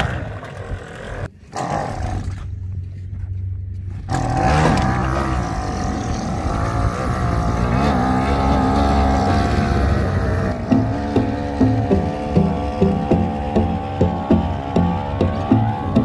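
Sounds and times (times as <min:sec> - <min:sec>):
outboard motor running: 0:04.1 - 0:16.0.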